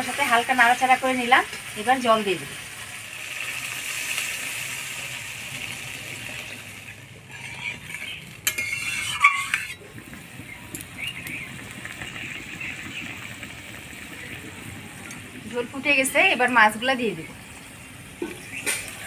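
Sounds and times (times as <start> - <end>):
curry bubbling: 0.0 - 19.0
water hissing in hot pan: 0.0 - 19.0
spatula scraping pan: 6.8 - 9.9.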